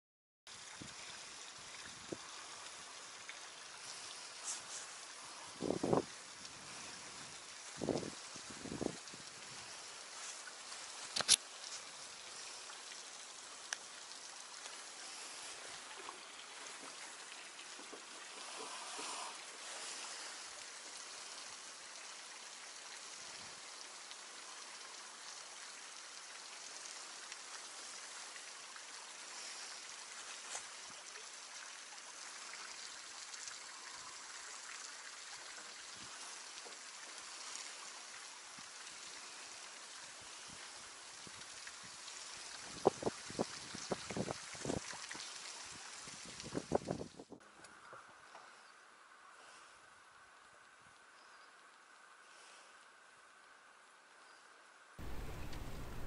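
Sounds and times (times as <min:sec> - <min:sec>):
outdoor hiss: 0:00.5 - 0:56.0
clicks and rustles of fishing line: 0:10.3 - 0:11.9.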